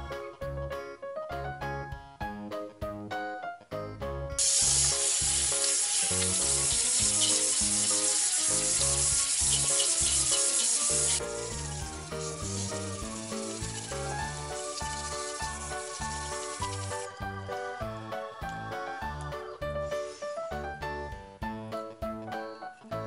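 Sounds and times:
background music with steady beat: 0.0s - 23.0s
tap water running into a sink: 4.4s - 17.2s.

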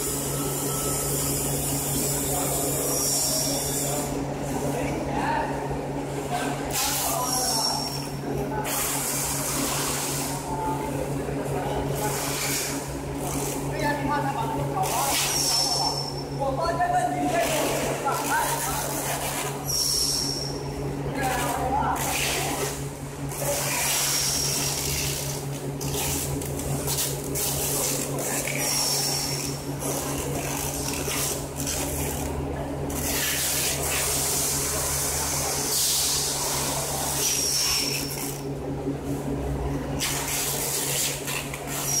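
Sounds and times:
electric gate motor hum: 0.0s - 4.7s
high squeak: 7.1s - 8.2s, 15.2s - 16.4s, 19.7s - 20.6s.

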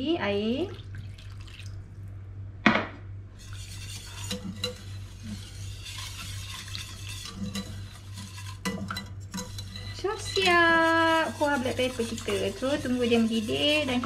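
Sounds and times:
water pouring into sauce: 0.7s - 1.9s
whisk scraping pan: 3.4s - 14.0s.

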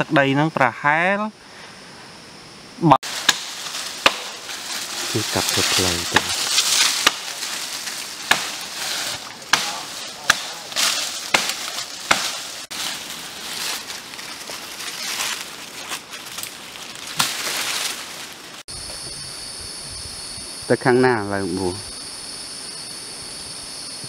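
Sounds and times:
machete chopping brush: 3.0s - 14.0s, 17.1s - 18.0s
dry leaves and twigs rustling: 3.0s - 18.9s.

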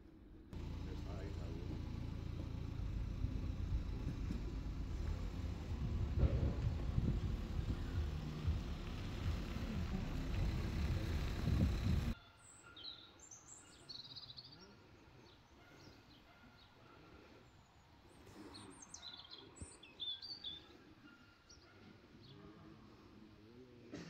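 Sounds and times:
loud low rumble: 0.6s - 12.2s
small birds chirping: 7.5s - 22.4s.

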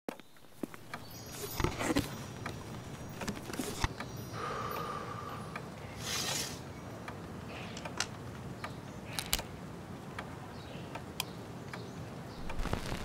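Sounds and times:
record and turntable clicks: 10.9s - 13.0s
vinyl record sliding swish: 12.4s - 13.0s.

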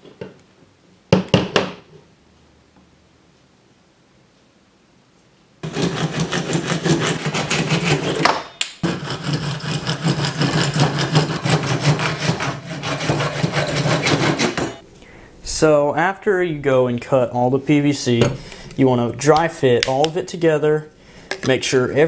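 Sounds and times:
hand saw cutting plastic pipe: 5.6s - 14.8s.

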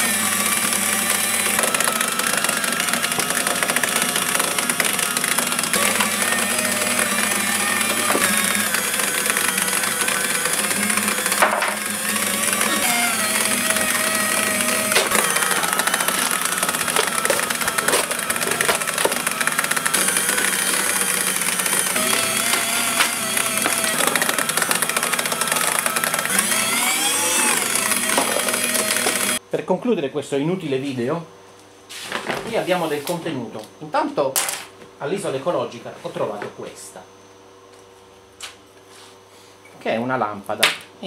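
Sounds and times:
paper shredder motor hum: 0.0s - 29.4s
shredder tearing cardboard: 0.0s - 29.4s.

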